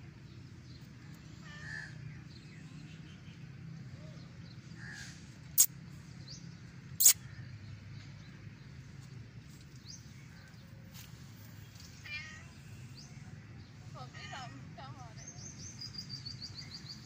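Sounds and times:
faint bird chirps: 7.0 - 7.2.

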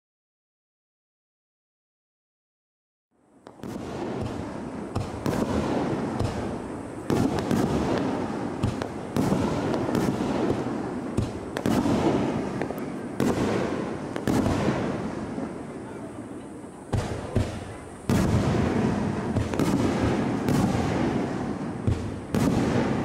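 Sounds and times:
firework shells bursting: 3.4 - 15.6, 16.9 - 23.0.

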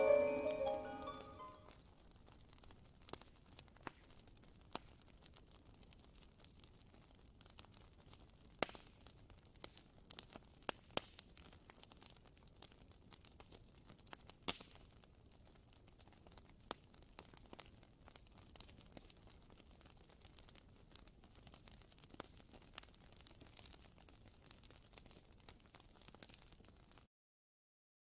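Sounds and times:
low hiss: 0.0 - 1.7
wood fire crackling and popping: 0.0 - 27.1.

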